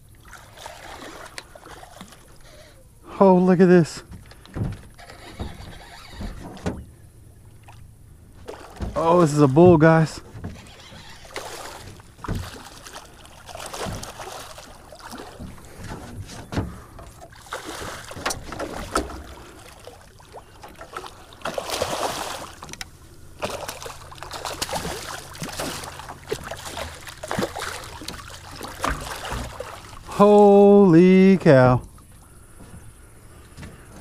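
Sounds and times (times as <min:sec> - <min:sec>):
fish thrashing and splashing: 0:00.1 - 0:02.6, 0:04.1 - 0:30.3
sharp knocks on boat: 0:04.0 - 0:05.6, 0:06.2 - 0:06.9, 0:08.4 - 0:10.7, 0:11.8 - 0:12.9, 0:13.6 - 0:19.4, 0:24.4 - 0:29.9.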